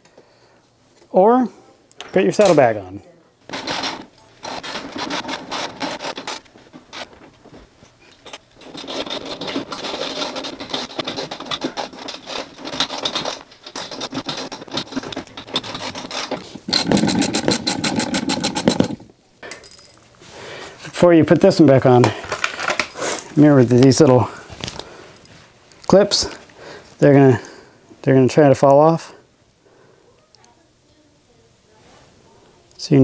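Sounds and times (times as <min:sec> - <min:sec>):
hand ratchet clicking rapidly: 0:08.6 - 0:19.0.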